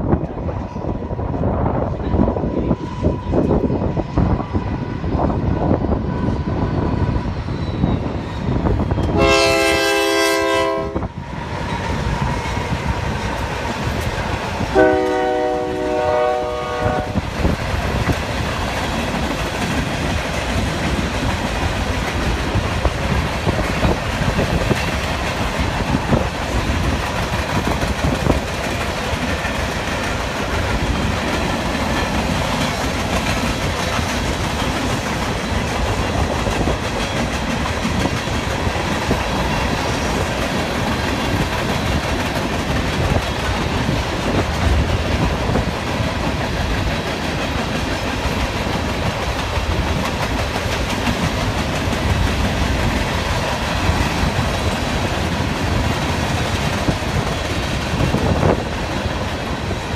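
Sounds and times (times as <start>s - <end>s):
clickety-clack of train wheels: 0.0s - 59.9s
diesel locomotives rumbling: 0.0s - 59.9s
train air horn blasts: 9.1s - 11.1s, 14.7s - 17.3s.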